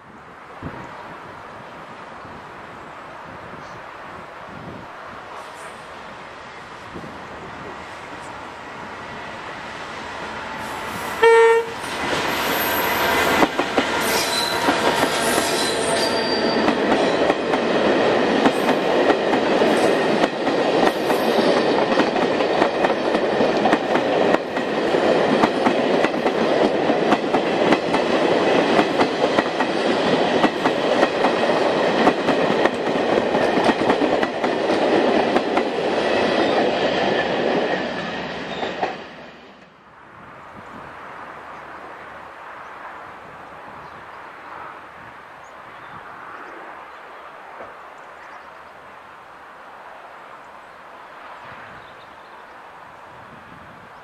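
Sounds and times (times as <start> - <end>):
train horn blast: 10.0 - 16.6
train wheels clattering: 11.8 - 39.7.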